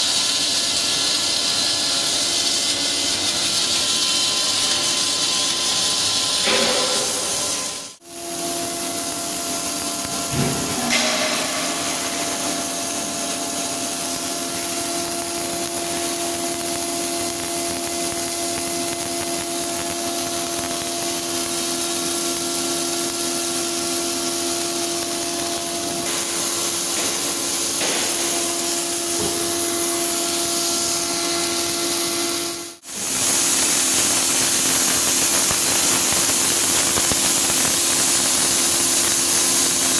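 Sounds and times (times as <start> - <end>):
steady electrical hum: 0.0 - 39.9
welding arc crackling hiss: 0.0 - 39.9.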